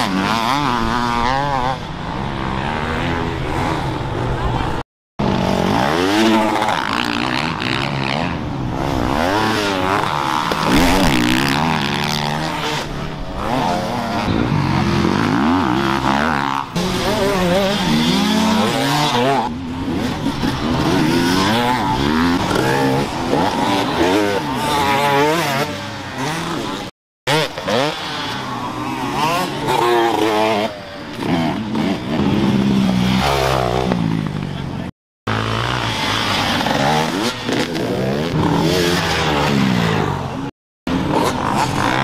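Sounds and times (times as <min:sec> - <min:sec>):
dirt bike engines revving: 0:00.0 - 0:42.0.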